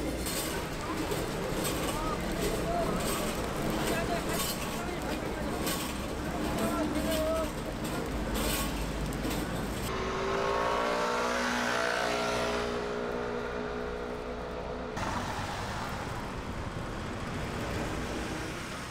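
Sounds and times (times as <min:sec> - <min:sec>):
steady traffic noise: 0:00.0 - 0:18.9
vehicle engine pulling away: 0:09.9 - 0:18.9.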